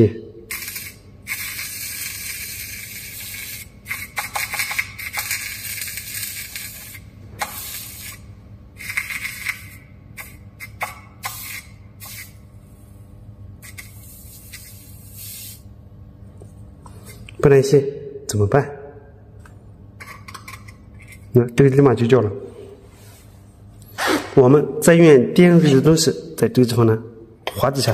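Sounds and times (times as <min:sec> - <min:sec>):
soldering iron hissing sizzle: 0:00.5 - 0:04.1, 0:13.6 - 0:15.7.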